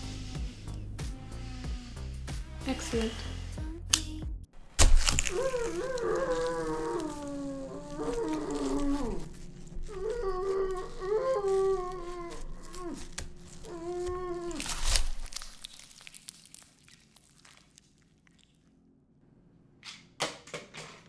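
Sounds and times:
steady low hum: 4.5 - 15.6.

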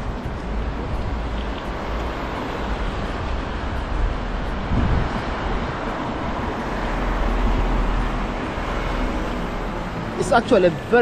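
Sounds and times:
passing vehicles with low rumble: 0.0 - 11.0.

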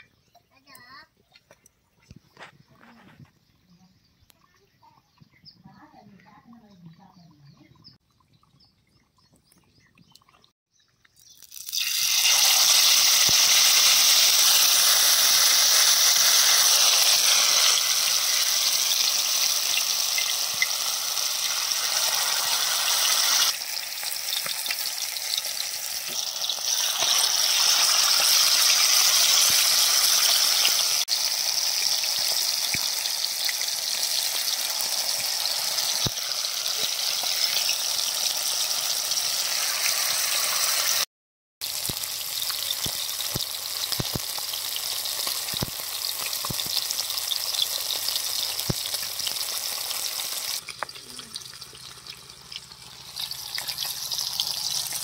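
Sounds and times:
fish deep-frying in hot oil: 10.9 - 55.0.

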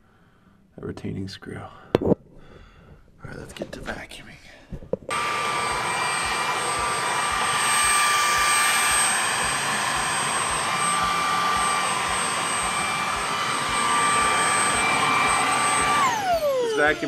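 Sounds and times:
stick vacuum running: 5.1 - 17.0.

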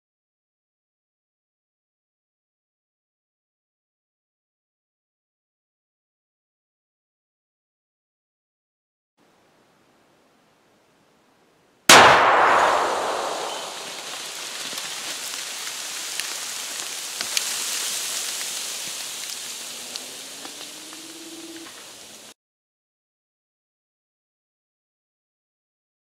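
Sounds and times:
explosion blast: 11.9 - 15.1
debris pattering through trees: 11.9 - 22.3.

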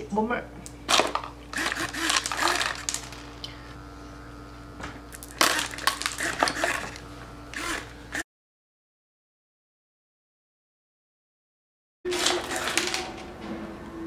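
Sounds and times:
candies rattling into hand: 0.9 - 3.3, 5.2 - 6.7
servo turning: 1.5 - 3.2, 5.2 - 8.2.

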